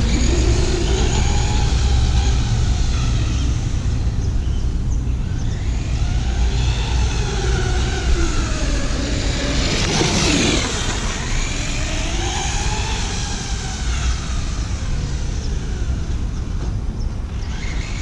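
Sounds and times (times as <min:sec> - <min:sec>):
toy truck electric motor whining: 0:00.0 - 0:04.0, 0:05.3 - 0:16.2, 0:17.4 - 0:18.0
tyres rushing: 0:07.2 - 0:12.2.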